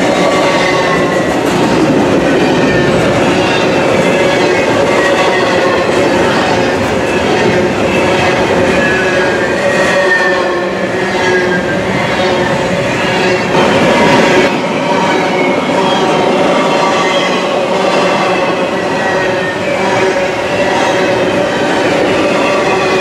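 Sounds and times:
freight train wheels rumbling: 0.0 - 23.0.

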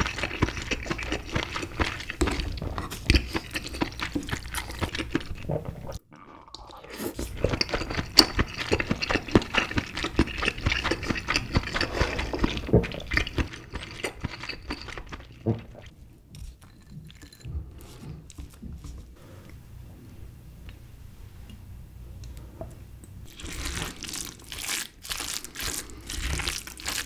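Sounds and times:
wet chewing: 0.0 - 15.9, 23.2 - 27.0.

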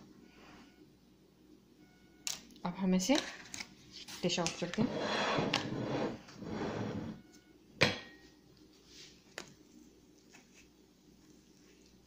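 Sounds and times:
kitchenware rustling and scraping: 3.1 - 7.2.

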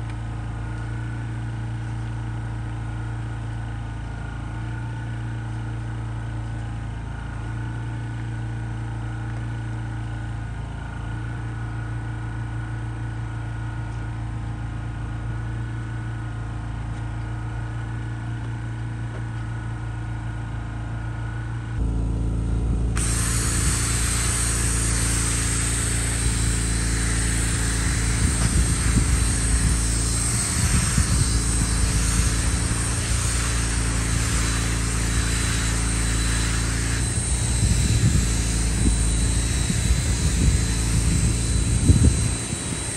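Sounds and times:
low machine hum: 0.0 - 42.9
drill brush scrubbing carpet: 23.0 - 42.9.

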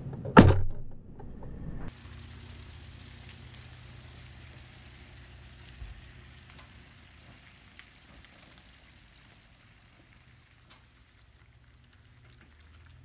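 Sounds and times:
low thump: 0.3 - 1.8.

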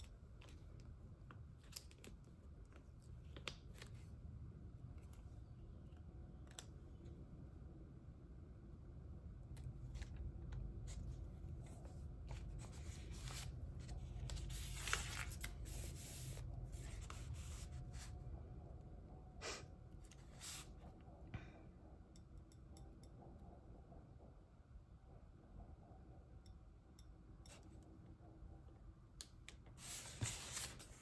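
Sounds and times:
paper pages rustling: 12.3 - 18.1, 29.8 - 31.0.

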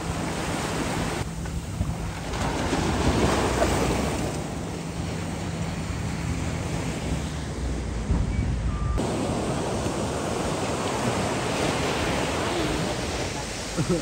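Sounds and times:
surf washing onto beach: 9.0 - 14.0.

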